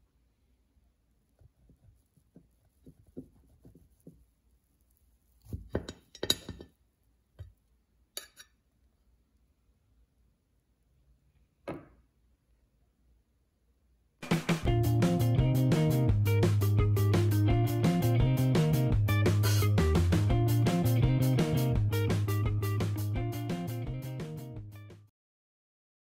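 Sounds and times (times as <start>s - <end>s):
knife clinking on ceramic plate: 5.7s - 6.7s, 8.2s - 8.6s.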